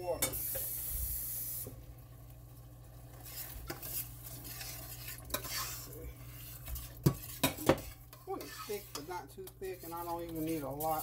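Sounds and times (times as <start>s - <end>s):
gravy sizzling in a pan: 0.0s - 11.0s
spatula scraping a pan: 3.1s - 11.0s.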